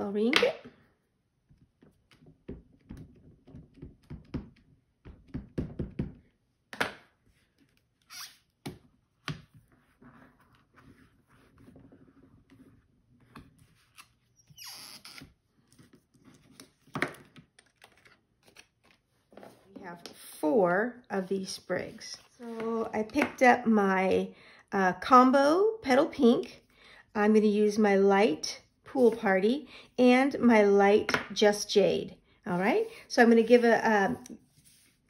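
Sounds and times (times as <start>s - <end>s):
paper sliding: 34.4s - 35.0s.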